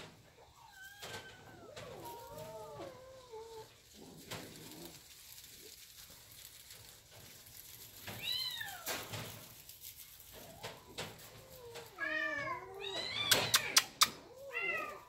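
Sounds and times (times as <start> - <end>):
kitten meowing: 11.7 - 15.0.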